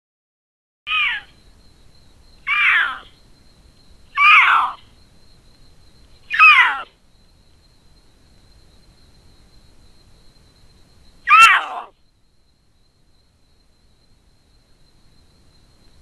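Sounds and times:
panther yowling: 0:00.9 - 0:01.3, 0:02.5 - 0:03.1, 0:04.2 - 0:04.8, 0:06.3 - 0:06.9, 0:11.3 - 0:11.9.

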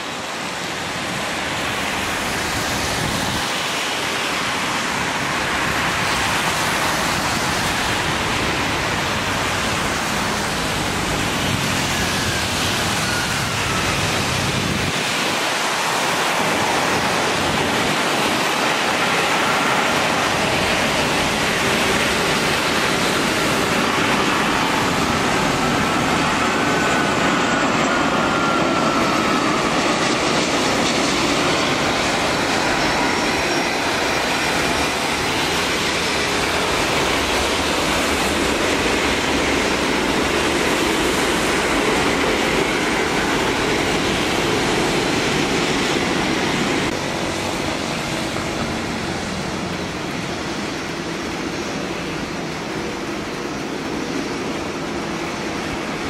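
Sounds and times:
heavy rain: 0:00.0 - 0:56.0
jet engines rushing: 0:00.0 - 0:56.0.

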